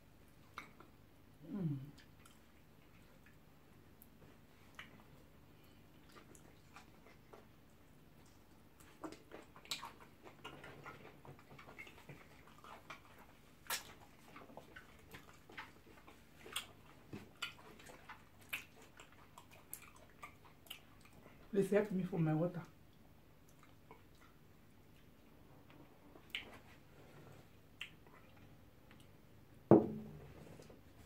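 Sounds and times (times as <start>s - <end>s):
people chewing: 0.3s - 3.4s, 4.0s - 21.5s, 22.9s - 29.2s
lip smacks: 0.4s - 1.0s, 4.0s - 7.5s, 8.2s - 21.3s, 26.2s - 26.8s, 27.7s - 29.2s.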